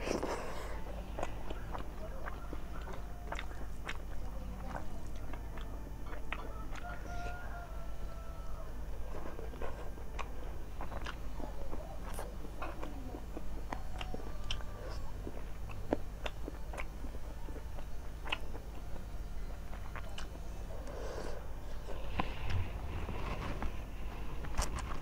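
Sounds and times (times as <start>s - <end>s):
chewing and wet mouth clicks: 0.0s - 7.3s, 9.4s - 21.0s, 24.4s - 25.0s
steady low hum: 0.0s - 25.0s.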